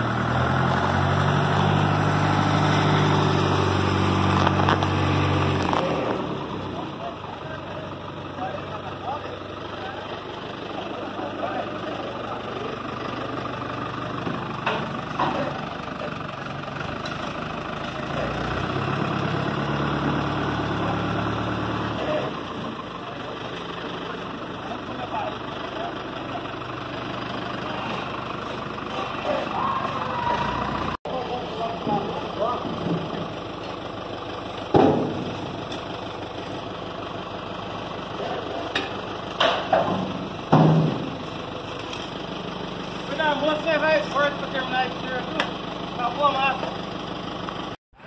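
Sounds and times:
tractor diesel engine running: 0:00.0 - 0:48.0
loud metal clatter on asphalt: 0:34.6 - 0:36.4, 0:38.2 - 0:42.4.

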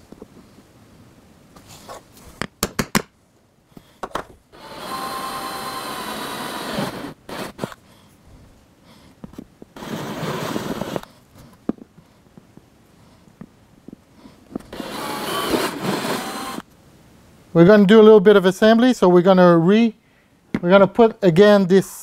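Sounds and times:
cordless drill boring plastic: 0:04.6 - 0:07.8, 0:09.8 - 0:11.0, 0:14.7 - 0:16.6.

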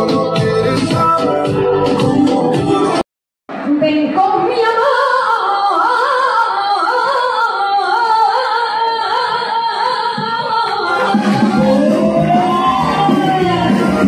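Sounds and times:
woman singing with vibrato: 0:03.8 - 0:14.0.

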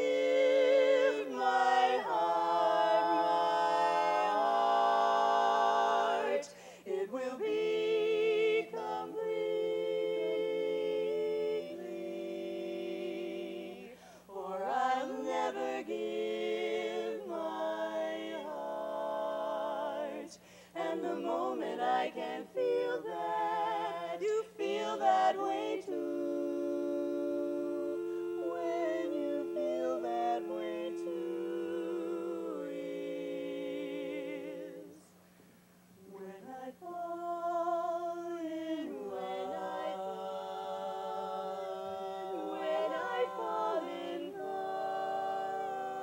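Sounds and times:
women singing a cappella harmony: 0:00.0 - 0:46.0.

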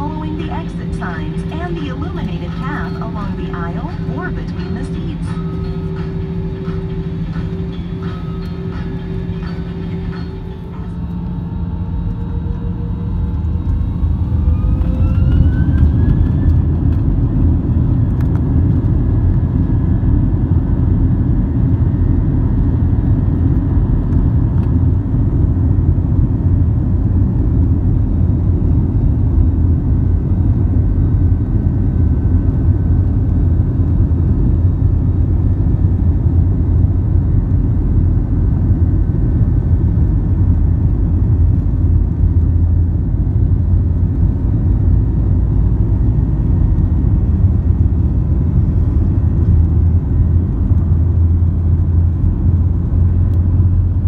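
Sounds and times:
jet engines spooling up: 0:00.0 - 0:17.6.

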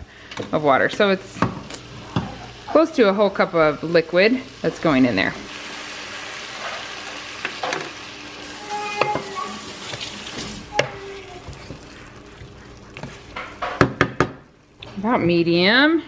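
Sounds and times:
water sizzling in hot pot: 0:00.5 - 0:14.8
wooden spoon scraping pot: 0:08.7 - 0:13.8.

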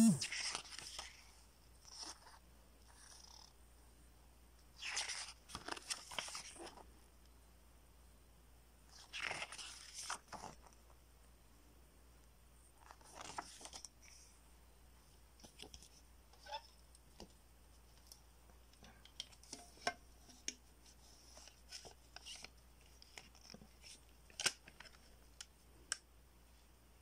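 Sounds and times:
paper rustling: 0:04.8 - 0:06.8, 0:08.9 - 0:10.8, 0:12.8 - 0:14.2.

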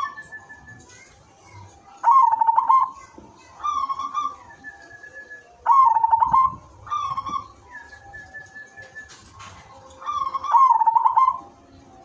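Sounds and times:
thin whistle-like tone: 0:00.0 - 0:00.9, 0:04.2 - 0:06.6, 0:07.2 - 0:09.4
dove cooing: 0:02.0 - 0:03.0, 0:05.6 - 0:07.7, 0:10.0 - 0:11.7.

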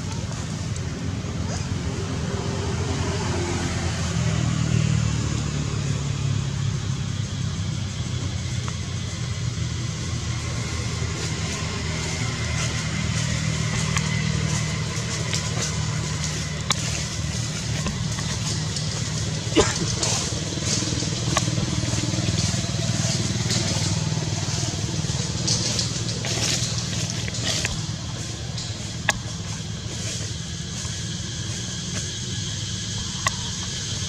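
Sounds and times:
engine humming: 0:00.0 - 0:34.0
faint clicks: 0:33.0 - 0:34.0.

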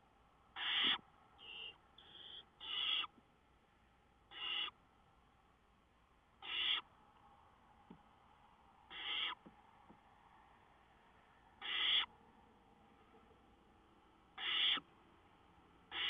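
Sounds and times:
owlets hissing begging call: 0:00.6 - 0:03.1, 0:04.3 - 0:04.8, 0:06.4 - 0:06.8, 0:08.9 - 0:09.4, 0:11.6 - 0:12.1, 0:14.4 - 0:14.9.

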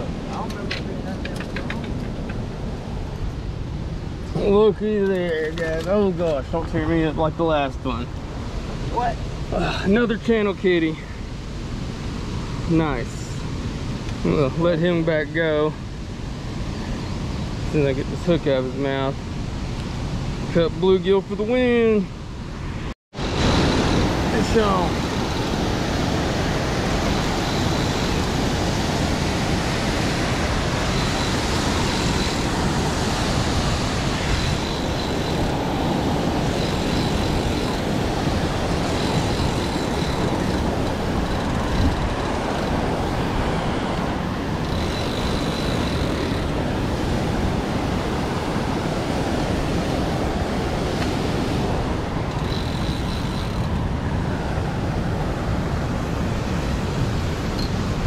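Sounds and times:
river water rushing: 0:23.2 - 0:58.0
wind buffeting microphone: 0:23.2 - 0:58.0.

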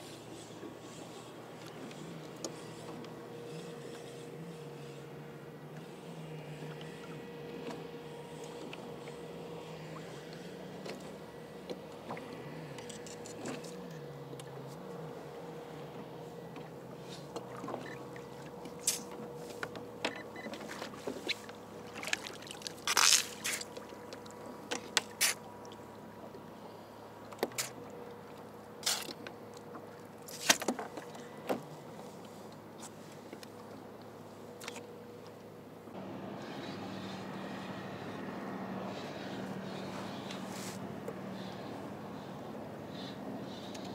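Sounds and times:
water splashing and trickling: 0:21.8 - 0:24.4
sharp knocks and splashes: 0:21.8 - 0:25.4.

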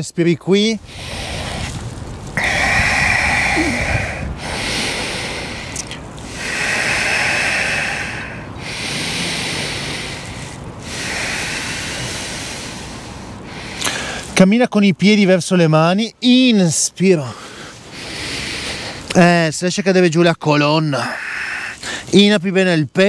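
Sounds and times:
slow deep breathing: 0:00.8 - 0:14.4, 0:17.2 - 0:19.2, 0:21.0 - 0:22.2.

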